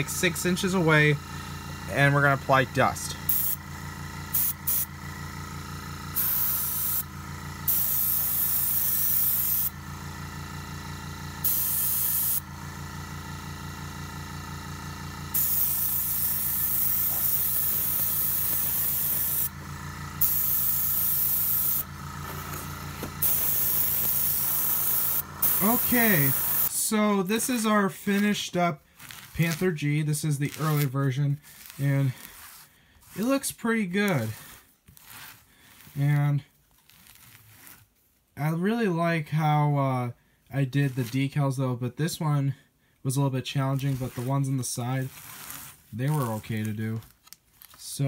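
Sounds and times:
steady low hum: 0.0 - 33.3
airbrush spraying hiss: 3.3 - 3.6, 4.3 - 4.9, 6.2 - 7.0, 7.7 - 9.7, 11.4 - 12.4, 15.3 - 19.5, 20.2 - 22.6, 23.2 - 26.7.

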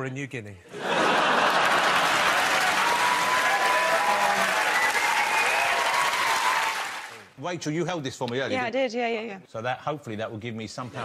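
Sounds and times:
audience applauding: 1.0 - 7.3.

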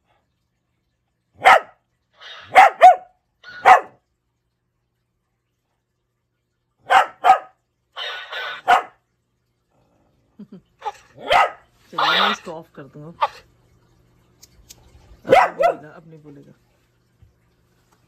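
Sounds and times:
dog barking: 1.4 - 1.8, 2.4 - 4.0, 6.8 - 7.6, 8.4 - 9.0, 11.2 - 11.7, 15.2 - 15.9.

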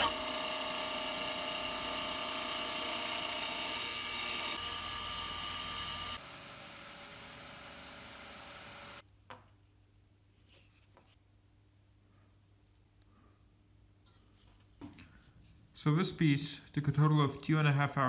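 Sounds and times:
drill press boring wood: 0.0 - 9.0
gouge cutting spinning wood: 0.0 - 9.0
wood lathe motor whine: 0.0 - 9.0.

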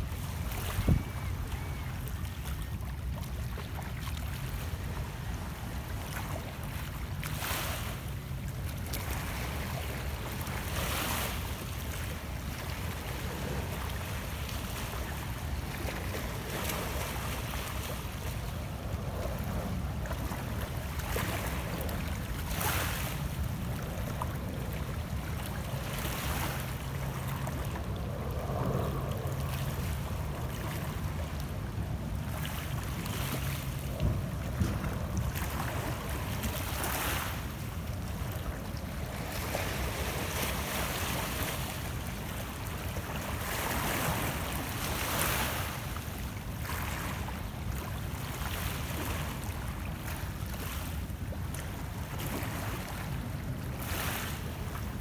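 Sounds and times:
waves lapping against rocks: 0.0 - 55.0
wind rumble on microphone: 0.0 - 55.0.

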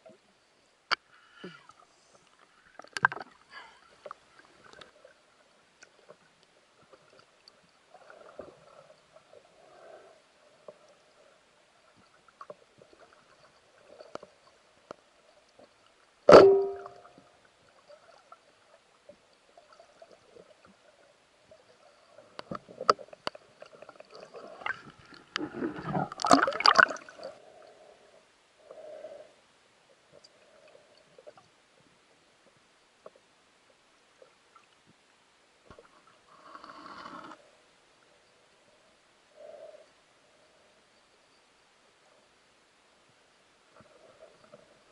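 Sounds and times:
sharp knock with ringing tone: 16.3 - 17.0
underwater gurgling and bubbling: 23.5 - 27.4.

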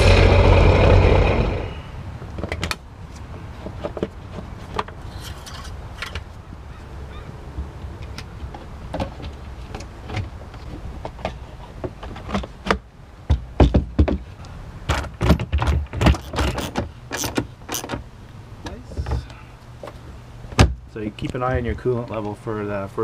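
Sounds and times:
steady low hum: 0.0 - 3.8
plastic parts clicking and rattling: 14.9 - 18.0.

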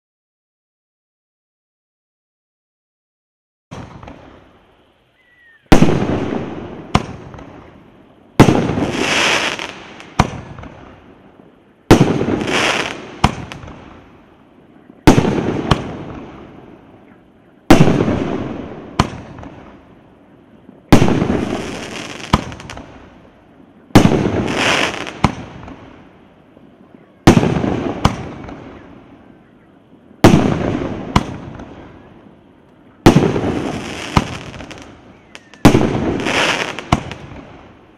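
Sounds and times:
firework shots banging: 3.7 - 4.4, 5.7 - 7.7, 8.4 - 11.0, 11.9 - 14.0, 15.0 - 16.6, 17.7 - 19.7, 20.9 - 23.0, 23.9 - 26.0, 27.2 - 28.9, 30.2 - 31.9, 33.0 - 37.6
small firework pops: 3.7 - 4.4, 6.9 - 7.8, 8.4 - 11.0, 11.9 - 14.0, 17.7 - 19.7, 20.9 - 23.0, 24.0 - 26.0, 27.3 - 28.9, 30.2 - 31.9, 32.6 - 37.6
firework crackle: 3.7 - 5.1, 5.7 - 37.9.

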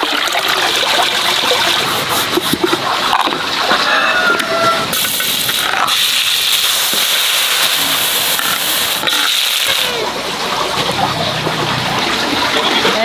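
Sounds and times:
food sizzling in hot oil: 4.9 - 10.0.

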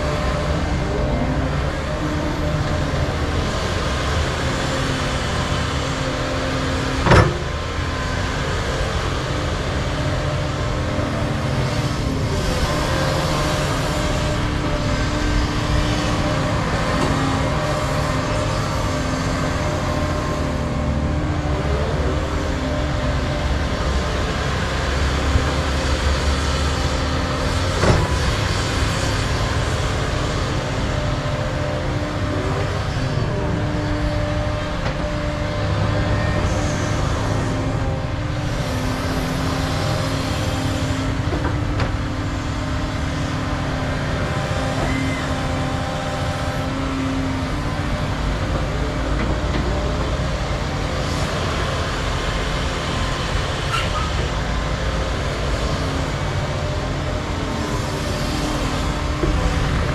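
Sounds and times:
excavator diesel engines running: 0.0 - 59.9.

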